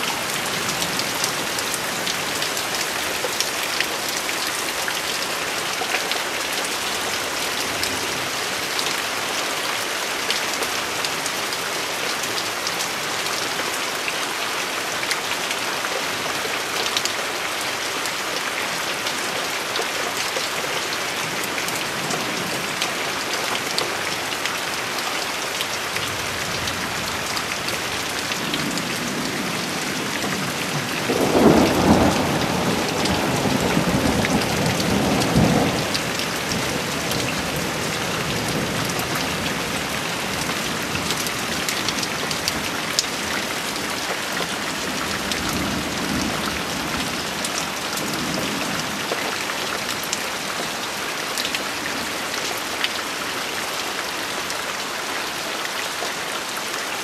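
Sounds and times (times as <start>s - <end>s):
steady rain falling: 0.0s - 57.0s
thunder rumbling: 30.8s - 39.0s.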